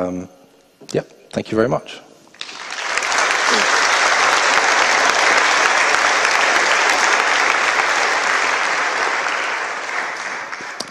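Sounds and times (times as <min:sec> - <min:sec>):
audience applauding: 0:02.4 - 0:10.9.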